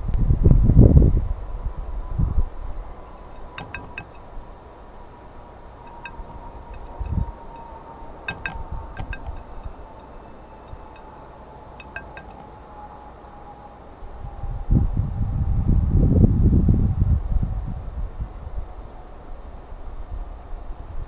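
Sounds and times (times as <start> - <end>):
bird bill pecking glass: 3.2 - 4.4, 5.8 - 12.7.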